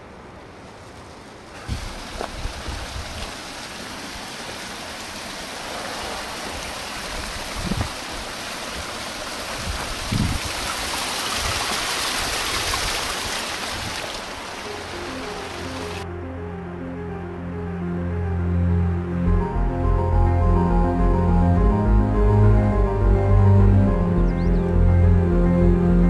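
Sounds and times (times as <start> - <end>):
stream rushing over rocks: 0.1 - 16.0.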